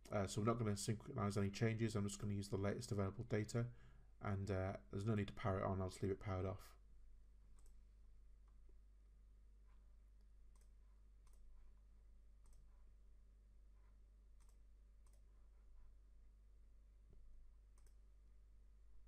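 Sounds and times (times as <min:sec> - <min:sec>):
computer mouse clicks: 0:07.5 - 0:07.8, 0:10.5 - 0:11.5, 0:12.4 - 0:12.7, 0:14.4 - 0:15.3, 0:17.7 - 0:18.0.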